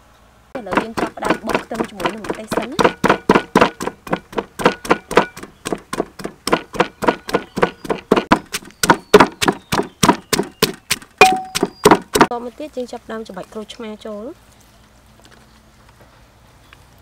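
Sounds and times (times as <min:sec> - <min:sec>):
pestle pounding in a clay mortar: 0:00.6 - 0:12.3.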